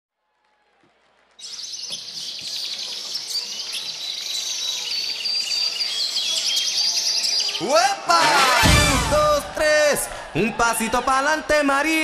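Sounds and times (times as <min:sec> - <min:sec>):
small birds chirping: 0:01.4 - 0:07.8.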